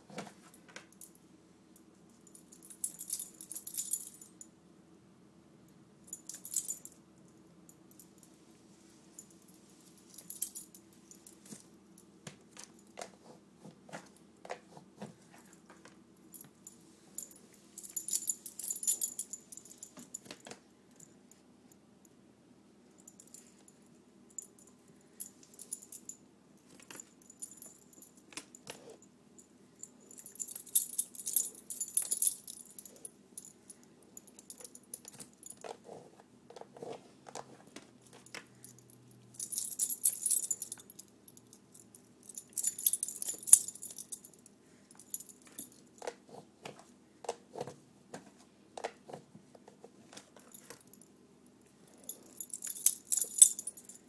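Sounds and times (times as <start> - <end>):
dog collar chain jingling: 2.2 - 4.4, 6.1 - 7.0, 9.4 - 11.5, 17.2 - 20.2, 26.8 - 28.2, 29.9 - 35.6, 38.5 - 45.9, 51.8 - 54.0.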